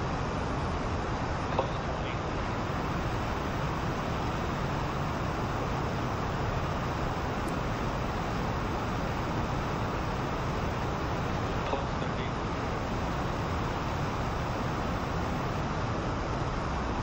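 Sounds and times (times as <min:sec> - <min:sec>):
rocket exhaust roar: 0:02.4 - 0:11.8, 0:12.4 - 0:15.7.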